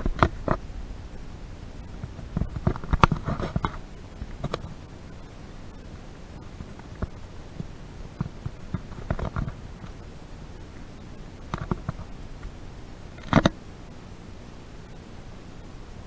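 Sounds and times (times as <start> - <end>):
low room rumble: 0.0 - 16.0
camera handling knocks and rustles: 2.0 - 4.7, 8.2 - 9.6.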